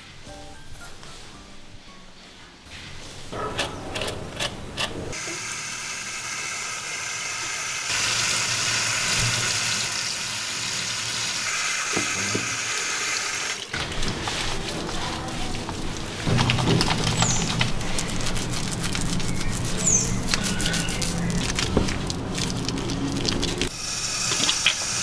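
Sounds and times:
water running from shower hose: 0:05.2 - 0:25.0.

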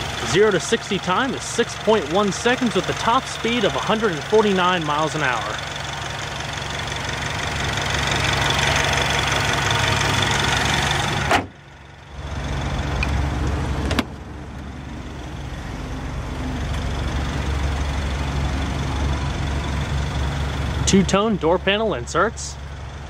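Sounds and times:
car engine idling: 0:00.0 - 0:23.0
car hood slamming shut: 0:11.3 - 0:11.6.

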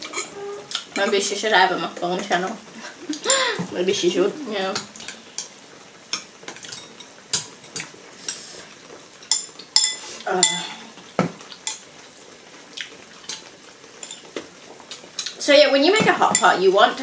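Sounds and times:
chopsticks and spoons clinking bowls: 0:09.3 - 0:10.8.

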